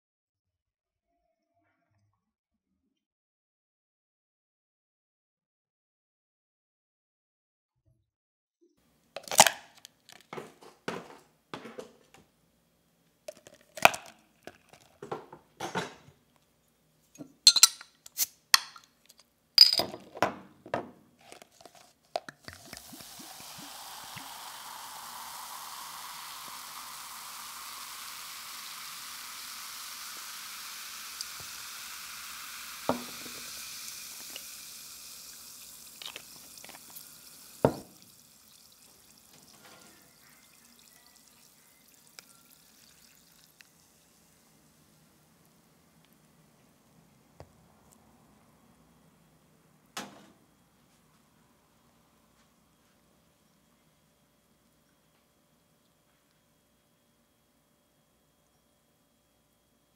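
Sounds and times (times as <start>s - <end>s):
ice cubes clinking into cup: 9.2s - 11.1s, 19.6s - 20.1s
fizzing drink pouring: 13.3s - 15.3s, 21.2s - 44.7s
glass bottle set down: 19.6s - 21.0s, 32.9s - 33.5s, 37.6s - 38.0s.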